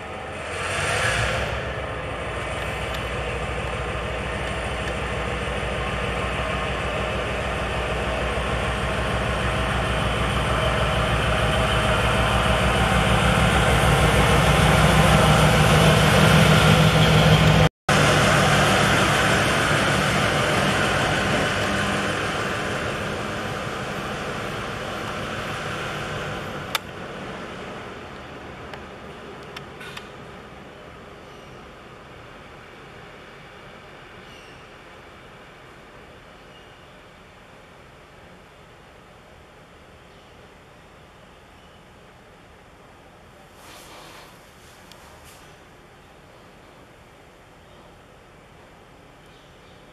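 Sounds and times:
locomotive engine droning: 0:00.0 - 0:43.9
short hiss: 0:43.6 - 0:45.6.

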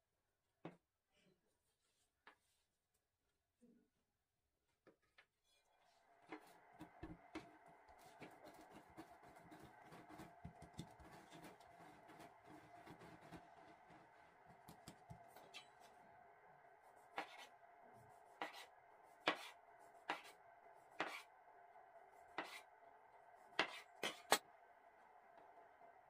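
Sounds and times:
knife slicing through dough: 0:18.4 - 0:20.3, 0:21.0 - 0:21.3, 0:23.6 - 0:24.4.

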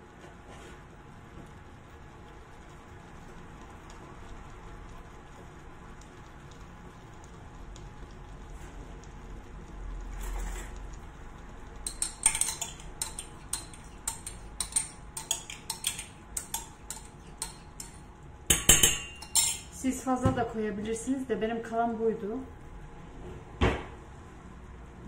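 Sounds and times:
metal spoon clinking in glass: 0:11.9 - 0:19.8.

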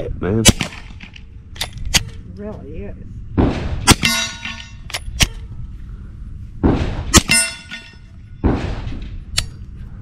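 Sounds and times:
suppressed pistol shot: 0:00.4 - 0:02.2
metallic ringing: 0:03.9 - 0:05.6, 0:07.1 - 0:08.5.

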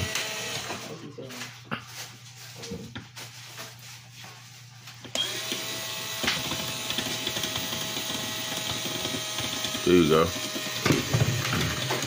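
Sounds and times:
cordless screwdriver whirring: 0:00.0 - 0:00.9, 0:05.1 - 0:12.0.

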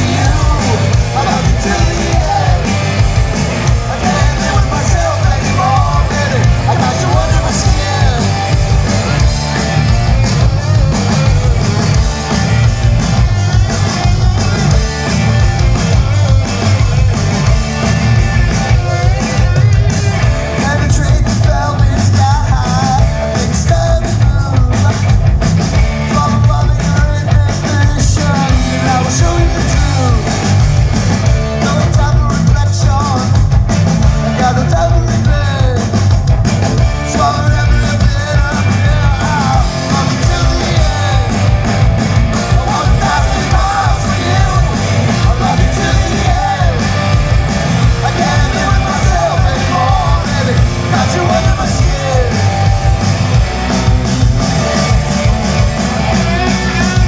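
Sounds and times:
man singing: 0:00.0 - 0:03.0, 0:03.6 - 0:11.9, 0:18.2 - 0:25.2, 0:25.8 - 0:30.6, 0:31.5 - 0:33.5, 0:34.2 - 0:36.1, 0:37.0 - 0:41.6, 0:42.3 - 0:47.2, 0:47.8 - 0:52.5
live rock band playing: 0:00.0 - 0:57.0.

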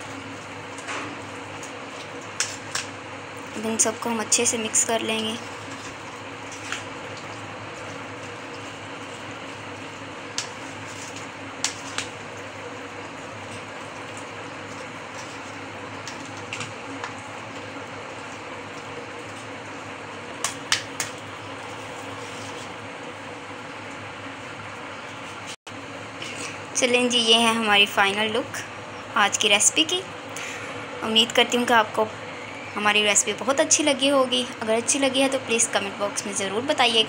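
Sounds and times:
steady background hum: 0:00.0 - 0:37.0
spoon stirring wet mix: 0:13.5 - 0:17.6.

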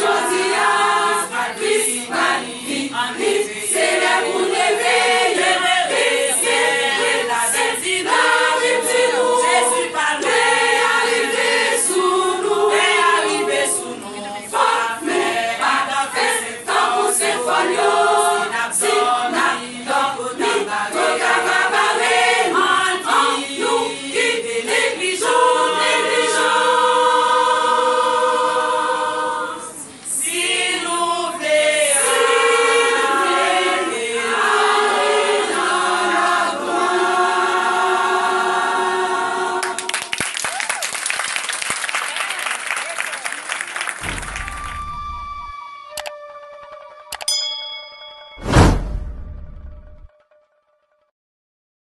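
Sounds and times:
women's choir singing a hymn: 0:00.0 - 0:40.1.

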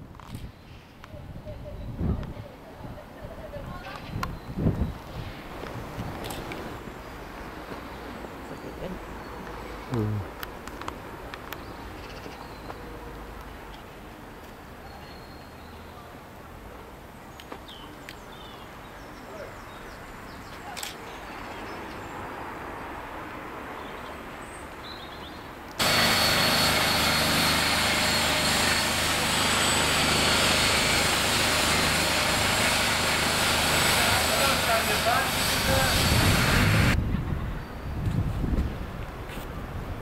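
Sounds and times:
loud steady rushing noise: 0:25.8 - 0:37.0.

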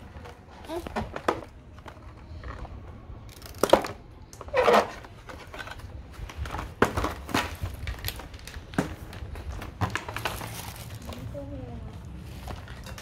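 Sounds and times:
packaging crinkling: 0:04.8 - 0:11.3.

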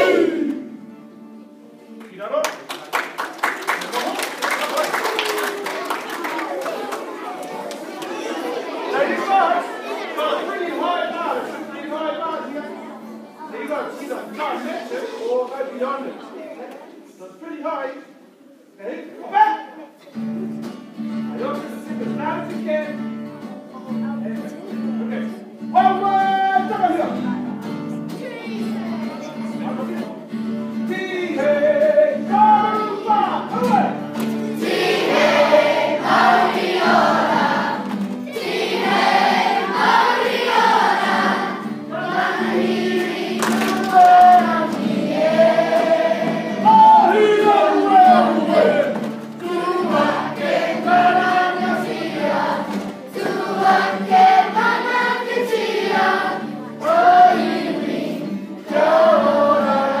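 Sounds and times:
children singing together: 0:00.0 - 0:00.8, 0:34.4 - 1:00.0.

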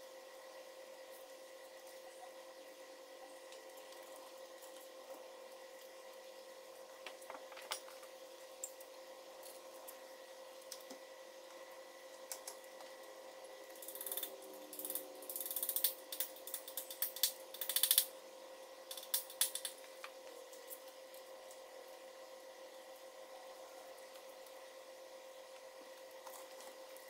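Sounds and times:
hand ratchet clicking: 0:13.8 - 0:18.1.

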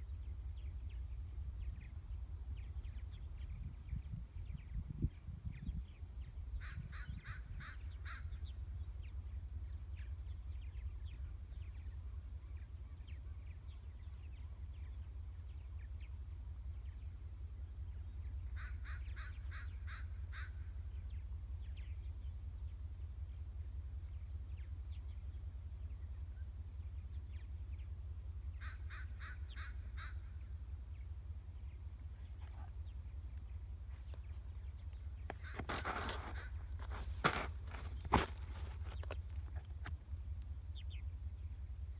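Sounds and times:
steady low rumble: 0:00.0 - 0:41.9
crow cawing: 0:06.6 - 0:08.4, 0:18.6 - 0:20.6, 0:28.6 - 0:30.3.

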